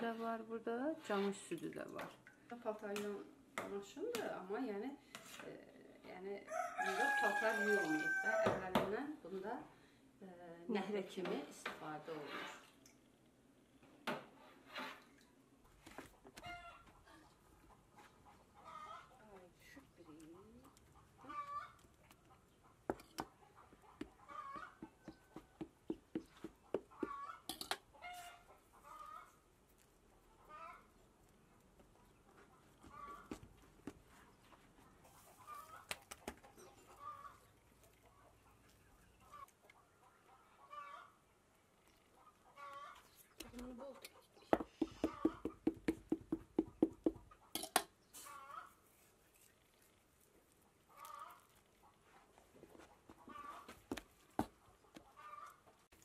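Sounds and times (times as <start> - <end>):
hens clucking: 17.6 - 19.4, 20.6 - 29.5, 30.2 - 31.0, 31.8 - 33.6, 34.2 - 41.2, 42.1 - 45.7, 48.2 - 48.8, 50.8 - 55.9
poultry calls: 23.4 - 25.4, 26.9 - 29.4, 32.6 - 33.4, 39.2 - 41.2, 50.9 - 51.5, 53.1 - 54.0, 54.9 - 55.7.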